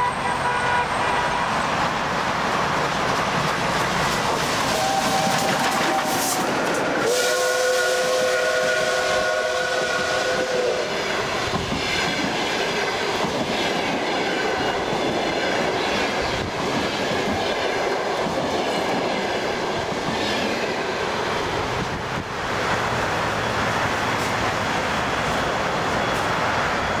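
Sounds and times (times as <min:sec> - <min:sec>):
steam locomotive whistle: 0:00.0 - 0:01.8, 0:04.6 - 0:12.0
train wheels clickety-clack: 0:01.4 - 0:27.0.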